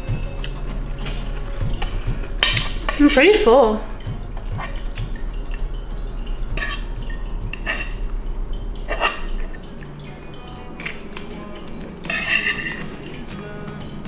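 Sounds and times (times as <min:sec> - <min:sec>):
cutlery clinking on a plate: 0:12.1 - 0:13.2.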